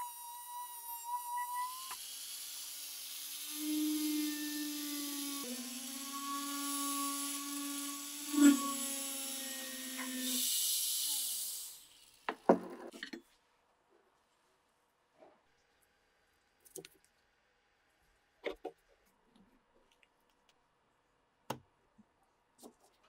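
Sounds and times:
rotary tool whining: 0.0 - 12.9.

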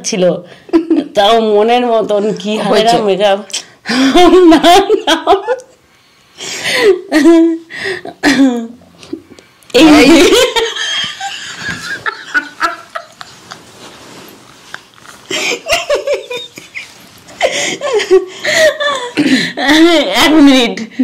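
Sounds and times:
women laughing: 4.0 - 5.7, 9.9 - 14.2, 15.2 - 19.5.

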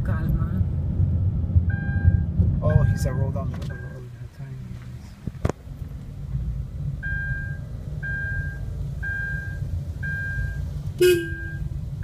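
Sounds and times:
engine and road rumble: 0.0 - 12.0
car warning beep: 1.7 - 4.1, 7.0 - 12.0
car horn toot: 11.0 - 11.7.

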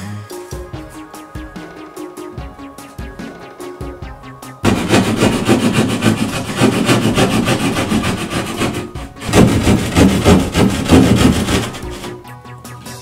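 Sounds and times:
hand saw rasping through drywall: 4.6 - 12.2.

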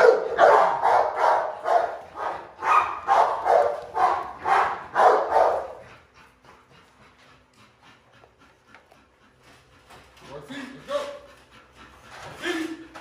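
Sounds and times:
dog barking: 0.0 - 5.8.

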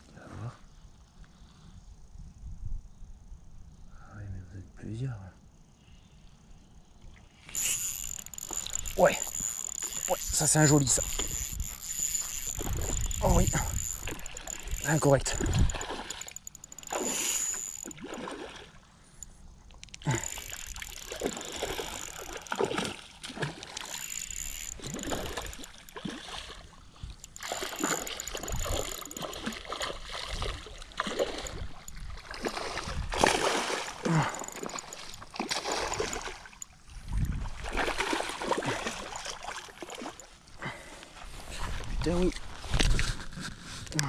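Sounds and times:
fishing reel winding: 7.4 - 18.0, 19.2 - 22.9, 23.5 - 30.0, 31.1 - 32.0, 33.9 - 36.7
fish splashing in water: 7.5 - 18.9, 19.9 - 36.8, 37.4 - 40.3.

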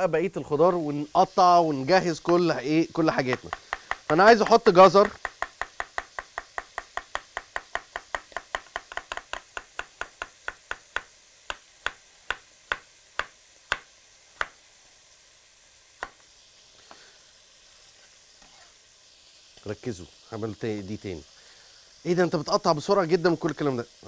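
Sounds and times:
knife chopping on wooden board: 3.3 - 14.6.

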